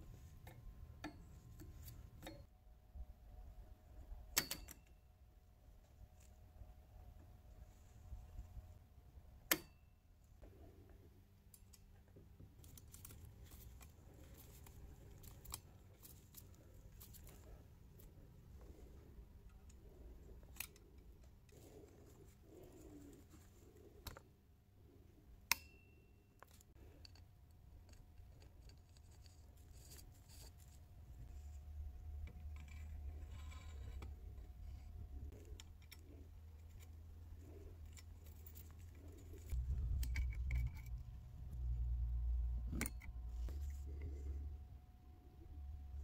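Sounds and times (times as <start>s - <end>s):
metallic clicks of tools: 4.3s - 5.0s, 9.5s - 9.9s, 25.4s - 29.3s
low rumble: 39.5s - 44.8s.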